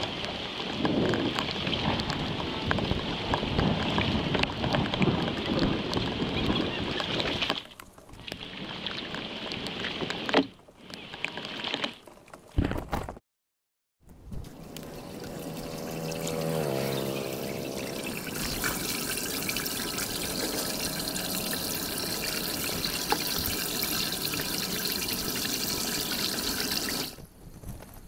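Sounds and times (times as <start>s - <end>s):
pitched hum: 14.2s - 25.8s
water pouring through drain grate: 14.4s - 27.2s.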